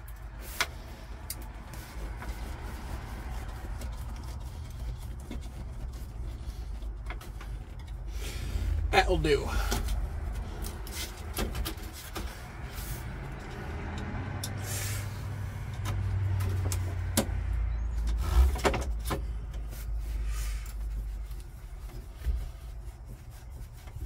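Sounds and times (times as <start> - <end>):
steady low rumble: 0.0 - 18.3.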